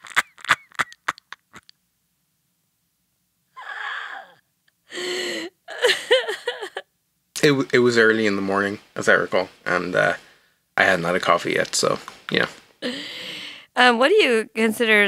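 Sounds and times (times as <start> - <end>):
breathy gasp: 3.7 - 5.6, 12.8 - 13.7.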